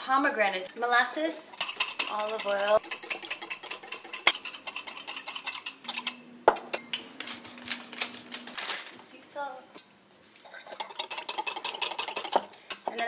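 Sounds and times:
whisk clinking in a ceramic bowl: 0:01.5 - 0:06.8, 0:10.7 - 0:13.0.

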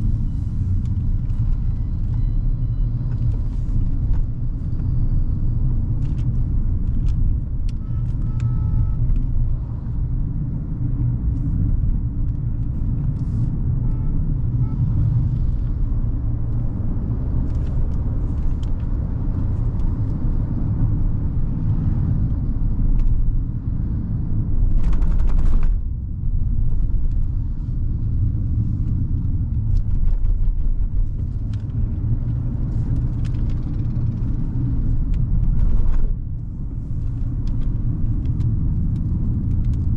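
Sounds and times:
car engine and tyres rumbling: 0:00.0 - 0:39.9.

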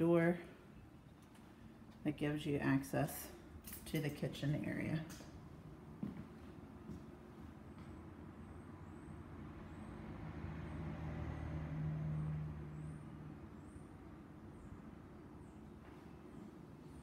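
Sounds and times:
steady low background hum: 0:00.0 - 0:10.0, 0:12.8 - 0:17.0
vehicle engine passing by: 0:08.3 - 0:14.6.

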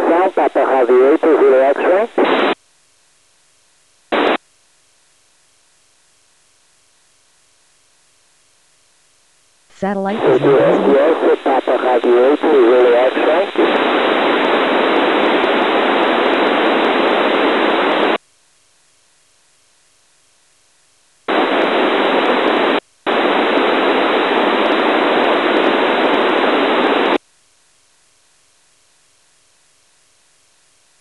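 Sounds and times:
radio receiver static hiss: 0:00.0 - 0:02.6, 0:04.1 - 0:04.4, 0:09.7 - 0:18.2, 0:21.3 - 0:27.2.

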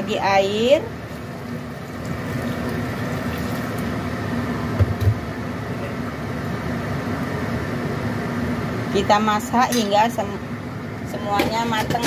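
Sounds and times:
water sizzling in hot wok: 0:00.9 - 0:04.3.

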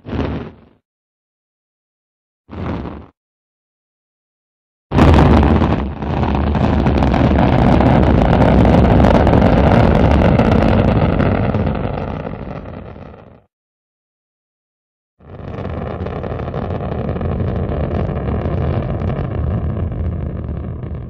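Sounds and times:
rocket engine rumble: 0:00.0 - 0:00.8, 0:04.9 - 0:13.2, 0:15.2 - 0:21.0.

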